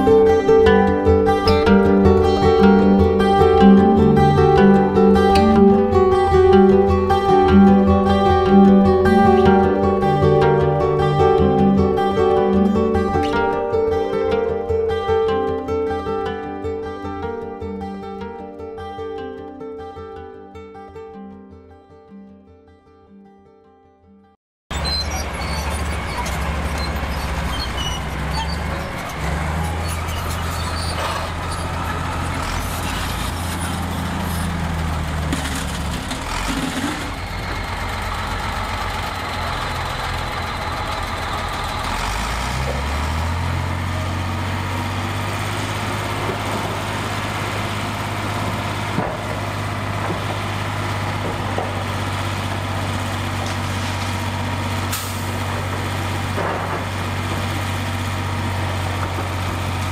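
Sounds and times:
heavy diesel engine running: 0.0 - 16.4, 24.7 - 59.9
metal knocks and clanks: 46.0 - 54.4, 55.4 - 57.7.

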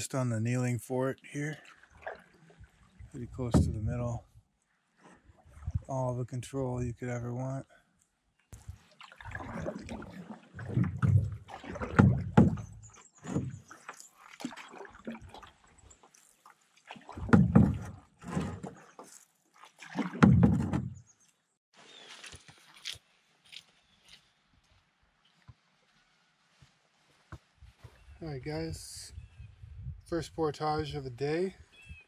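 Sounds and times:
canoe paddle swishing through water: 1.2 - 3.9, 4.6 - 6.2, 8.6 - 23.2.

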